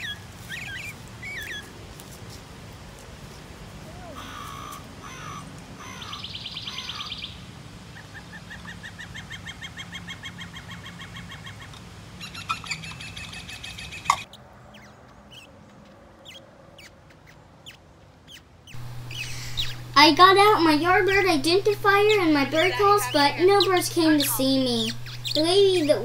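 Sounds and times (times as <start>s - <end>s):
recorded bird songs from speaker: 17.6s - 26.0s.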